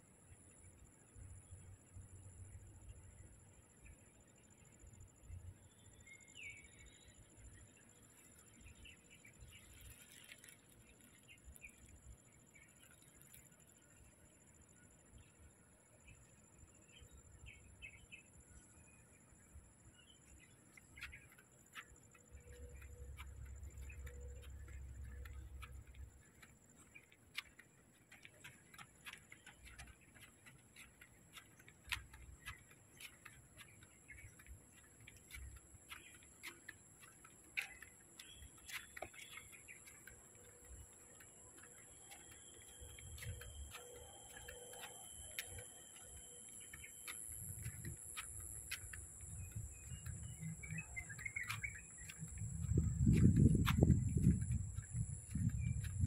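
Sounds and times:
faint bird chirps: 0.2 - 56.0
light ticks and clicks: 6.7 - 17.6, 19.4 - 56.0
high-pitched hum: 41.8 - 56.0.

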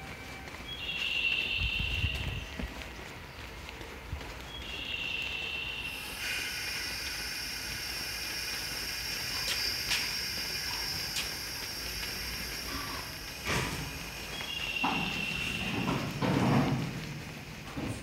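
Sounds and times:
air brakes hissing: 4.7 - 17.9.

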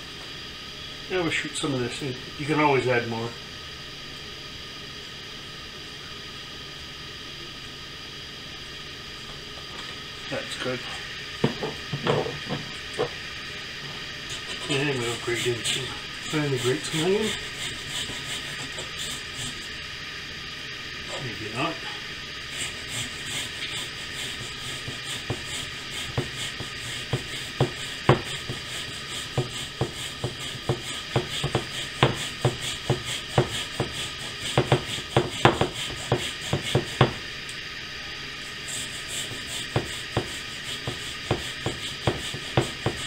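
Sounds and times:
onion scraping on grater: 14.3 - 19.7, 22.5 - 37.2, 38.6 - 43.0.

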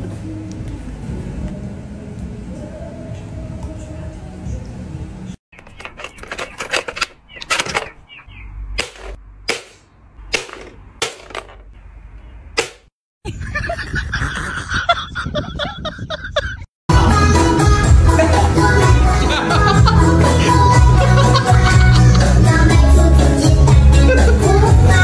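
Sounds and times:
clattering noise: 5.5 - 8.0, 8.8 - 11.8
toy launcher pops and clicks: 8.8 - 11.3.

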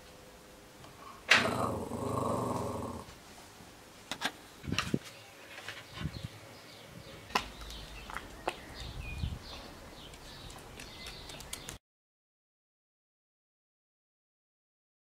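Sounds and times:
small dog growling: 1.3 - 3.1.

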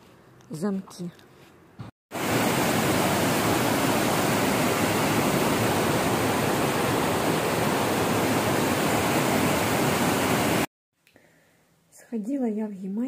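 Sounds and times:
water rushing over weir: 2.1 - 10.7.

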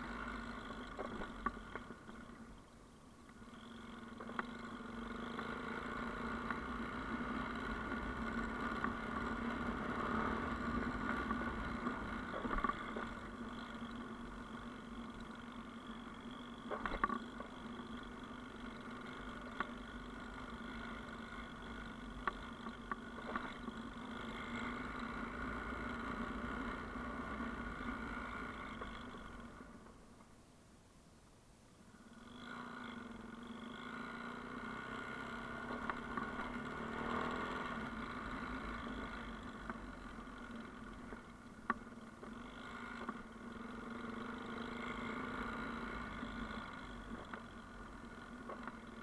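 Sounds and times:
motorcycle engine running: 0.0 - 30.2, 31.9 - 49.0
sharp clicks and knocks: 16.7 - 17.5.

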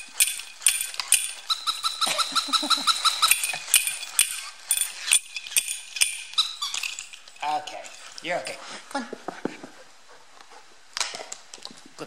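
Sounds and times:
toy cymbals clashing: 0.0 - 8.7.

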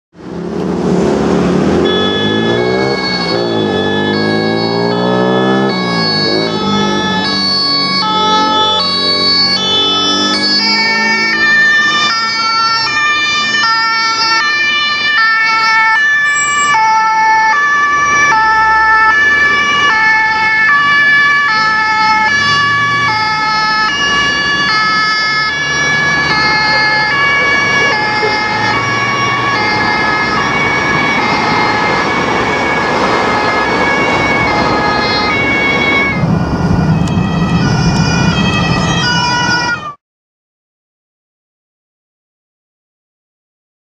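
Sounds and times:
engine and traffic rumble: 0.1 - 40.0
two-tone siren: 1.4 - 40.0.

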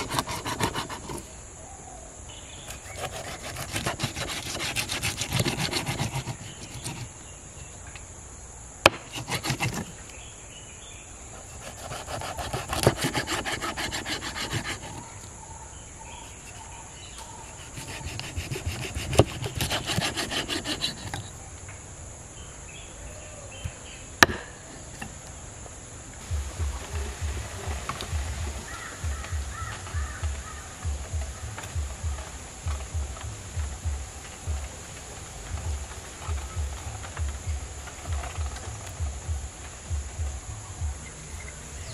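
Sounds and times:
knife scraping fish scales: 0.0 - 1.3, 2.7 - 7.1, 11.4 - 15.0, 16.2 - 21.3.

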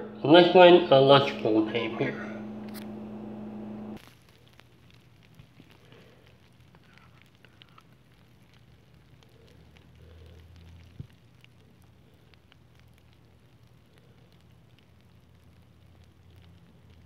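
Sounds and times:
steady low hum: 0.0 - 4.0
small ticks and crackles: 4.0 - 17.0.

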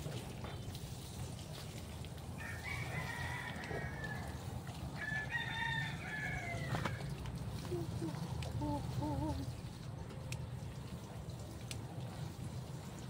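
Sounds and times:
rooster crowing: 2.4 - 7.1.

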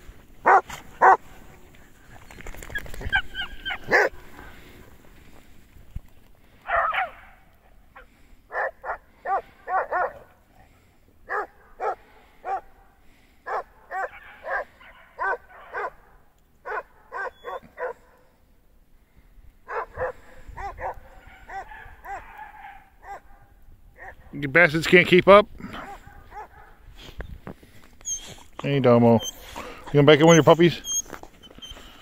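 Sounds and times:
hounds barking: 0.4 - 1.4, 2.7 - 4.7, 6.6 - 10.4, 11.2 - 18.4, 19.6 - 24.4, 25.7 - 26.9.

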